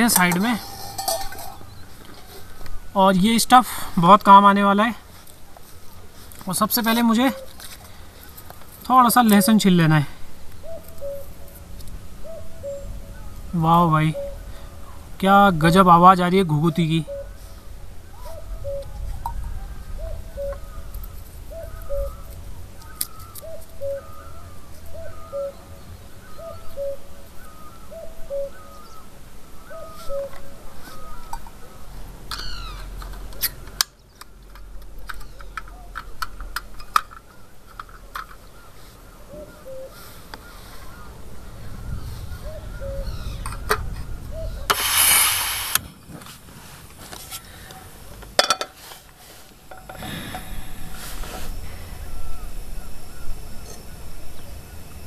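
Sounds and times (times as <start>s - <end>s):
dove cooing: 10.6s - 11.6s, 12.2s - 13.3s, 14.1s - 15.0s, 16.7s - 22.4s, 23.2s - 29.0s, 29.6s - 31.8s, 38.6s - 44.7s
loud noisy burst: 44.7s - 45.9s.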